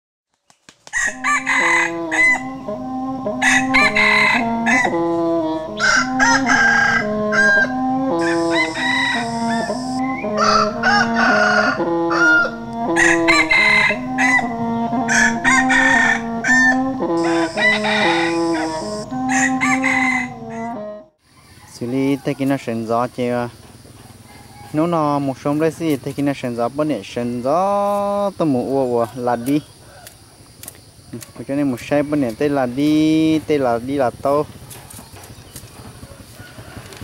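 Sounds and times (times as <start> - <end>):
roosters crowing: 0.9 - 37.0
chickens clucking: 1.0 - 27.8, 28.6 - 37.0
background music with bass line: 1.1 - 21.1.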